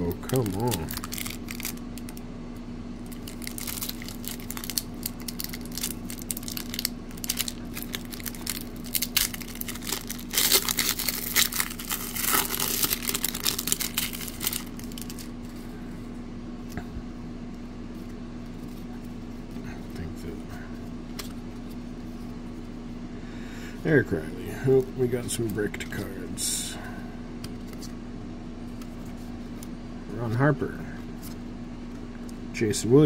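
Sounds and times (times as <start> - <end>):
faint low hum: 0.0 - 33.0
wrapper tearing and crinkling: 0.2 - 2.2, 3.0 - 15.3.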